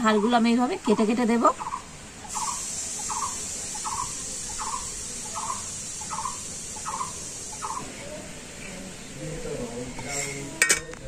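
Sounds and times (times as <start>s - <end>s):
animal calling: 0.0s - 8.7s
steady high hiss: 0.0s - 11.0s.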